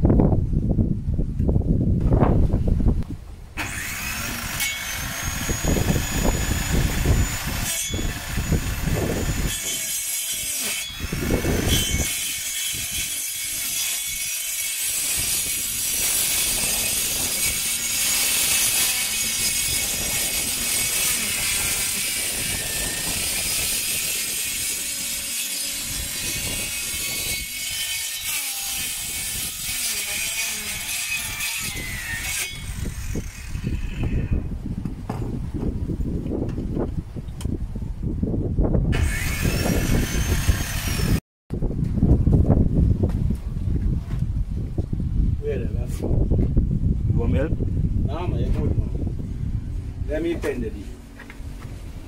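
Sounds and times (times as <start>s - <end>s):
circular saw cutting wood: 3.6s - 34.4s, 38.9s - 41.2s.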